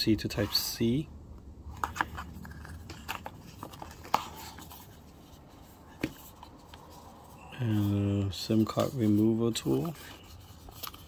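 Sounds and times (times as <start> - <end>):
cardboard box rustling and scraping: 1.7 - 11.0.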